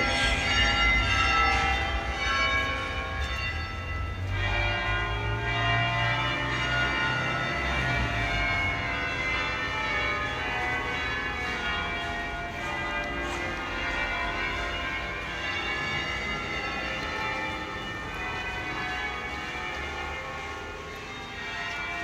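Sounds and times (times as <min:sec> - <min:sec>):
church bells ringing: 0:00.0 - 0:22.0.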